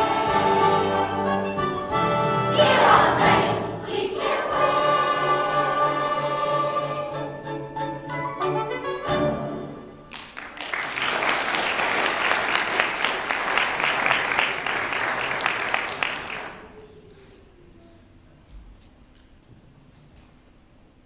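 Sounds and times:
audience applauding: 10.1s - 16.8s.

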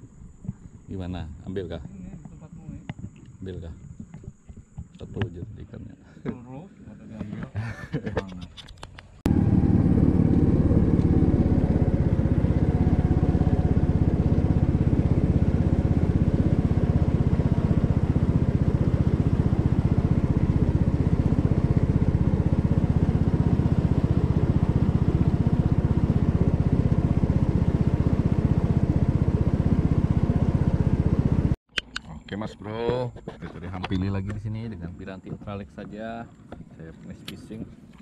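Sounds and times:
small boat engine running: 9.0s - 31.6s.

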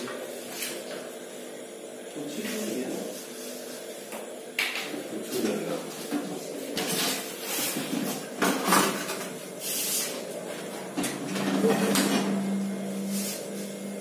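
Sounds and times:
metal pots clattering and scraping: 5.9s - 12.5s
steady low hum: 9.2s - 14.0s.

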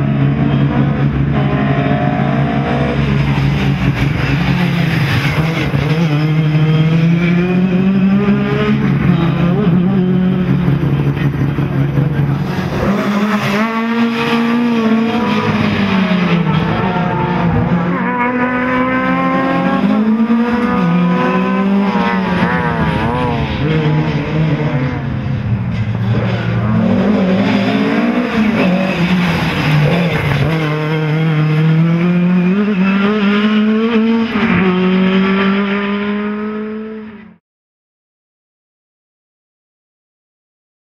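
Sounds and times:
rally car engine revving hard: 0.0s - 37.4s.

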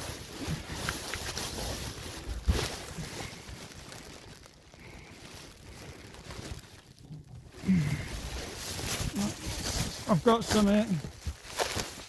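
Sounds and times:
rustling handling noise: 0.0s - 12.0s.

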